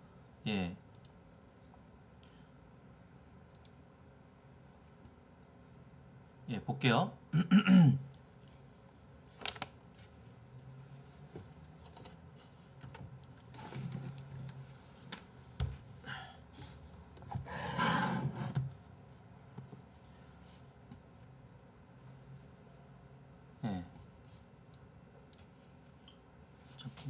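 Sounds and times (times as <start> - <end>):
keyboard and mouse clicks: 0.9 - 1.5, 3.5 - 3.8.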